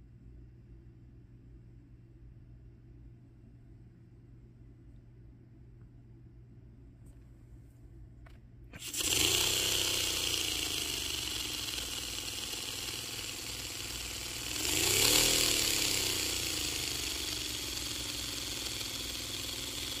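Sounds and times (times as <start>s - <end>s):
small air engine humming: 8.7s - 20.0s
compressed air hissing: 8.8s - 20.0s.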